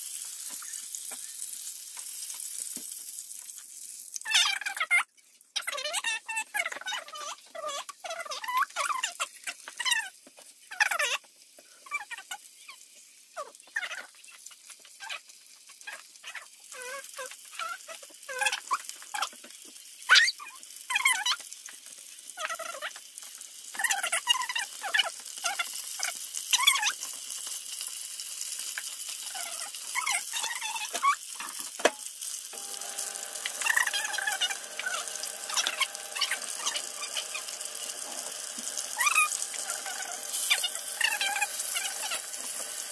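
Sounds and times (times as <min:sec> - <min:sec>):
chicken sizzling in hot oil: 0:00.0 - 0:42.9
high squeaky chirps: 0:32.6 - 0:42.9
steady multi-tone hum: 0:32.6 - 0:42.9.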